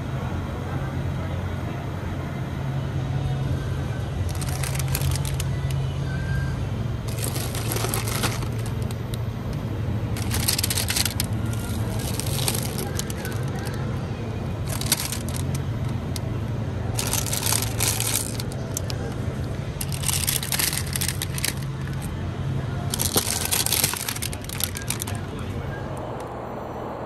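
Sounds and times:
plastic bags crinkling: 4.3s - 5.8s, 7.1s - 9.2s, 10.2s - 13.9s, 14.6s - 16.3s, 16.9s - 22.1s, 22.9s - 25.4s.

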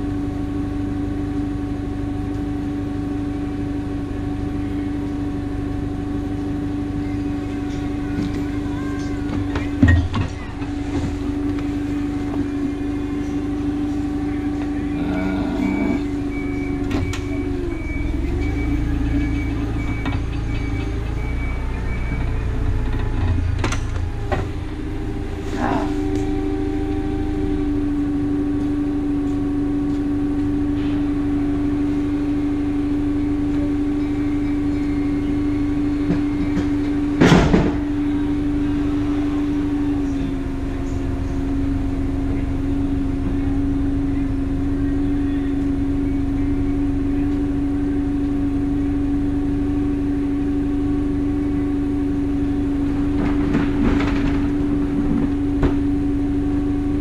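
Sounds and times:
truck engine droning: 0.0s - 57.0s
high beeps: 12.7s - 23.6s.

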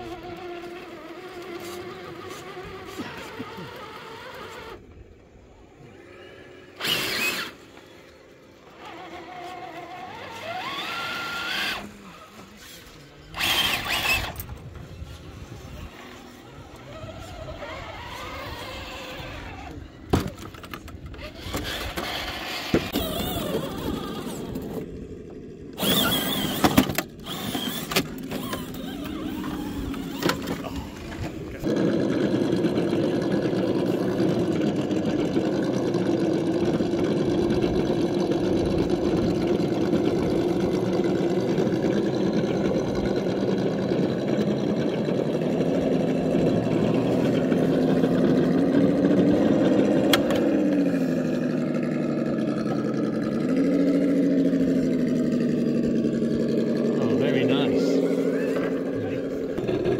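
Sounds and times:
toy car motor and gear whir: 0.0s - 4.9s, 5.8s - 34.5s.

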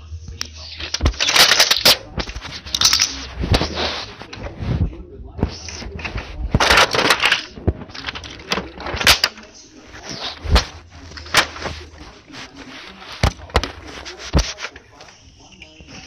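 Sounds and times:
toy vehicles clicking and knocking: 0.7s - 3.8s, 6.1s - 9.4s
rustling on carpet: 0.8s - 16.0s.

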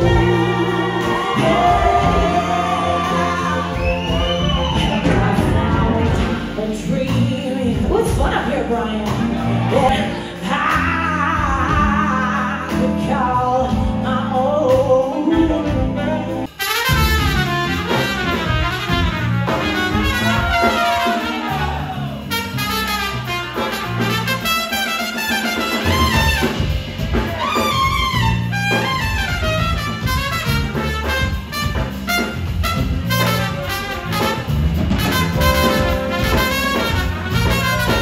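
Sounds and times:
trumpet playing lead: 0.0s - 6.3s, 16.5s - 38.0s
woman singing: 0.0s - 16.5s
live band music: 0.0s - 38.0s.

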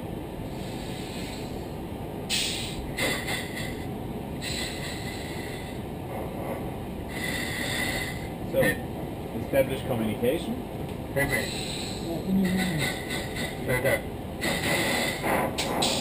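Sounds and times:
cockpit air noise: 0.0s - 16.0s
oxygen hissing through masks: 0.5s - 1.6s, 2.3s - 3.8s, 4.4s - 5.8s, 7.1s - 8.3s, 11.4s - 16.0s.

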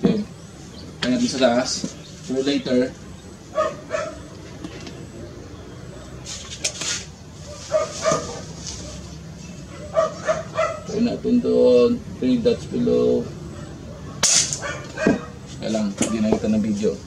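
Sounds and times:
dog barking: 3.5s - 4.3s, 7.4s - 9.1s, 9.7s - 11.0s, 13.5s - 15.4s.

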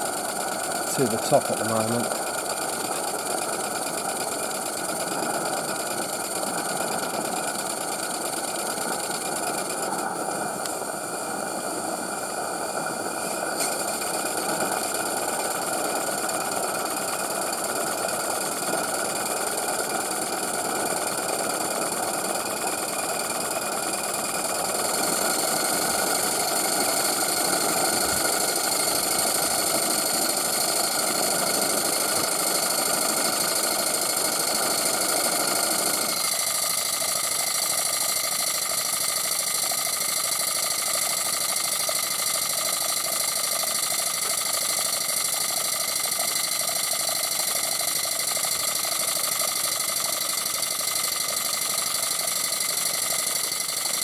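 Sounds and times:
gas burner roaring: 0.0s - 54.0s.

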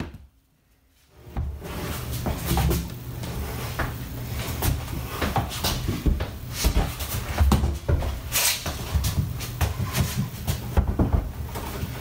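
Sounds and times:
wooden knocks and thumps: 9.2s - 12.0s.

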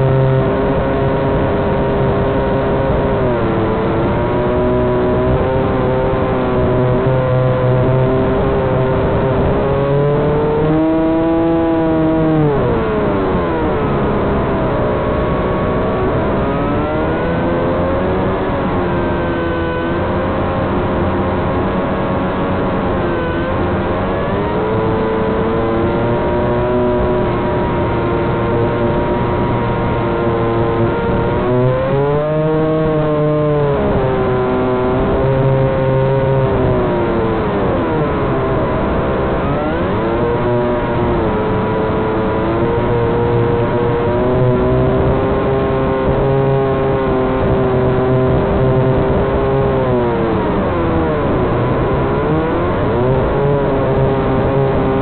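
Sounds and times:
drone motors whining: 0.0s - 55.0s.

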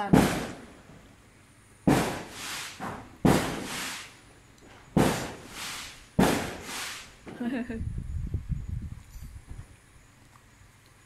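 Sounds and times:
firecrackers banging: 0.0s - 0.8s, 1.9s - 4.2s, 5.0s - 7.2s.

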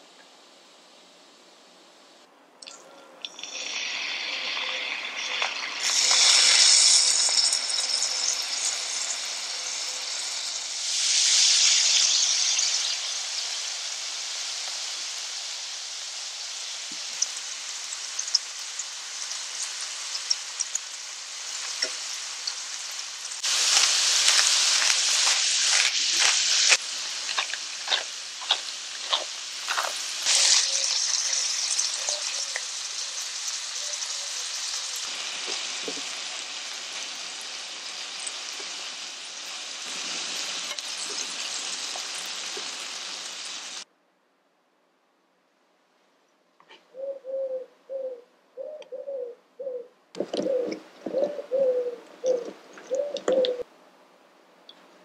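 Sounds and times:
shrimp sizzling in frying pan: 3.2s - 43.9s
sharp ticks and pops: 16.9s - 21.0s, 23.8s - 30.0s.

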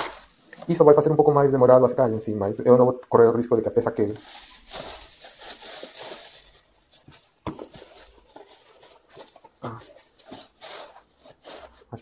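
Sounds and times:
plastic bag crinkling: 0.0s - 1.0s, 4.0s - 12.0s.

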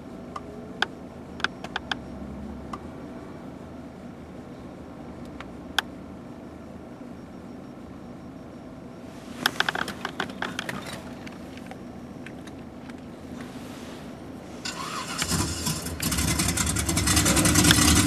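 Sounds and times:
low car hum: 0.0s - 18.0s
recorded engine start sound: 14.6s - 18.0s.

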